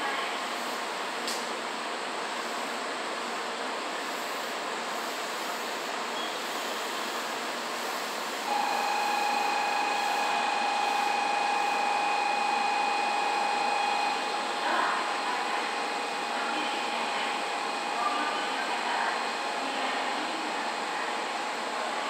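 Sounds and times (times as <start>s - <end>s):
steady high whine: 8.1s - 22.0s.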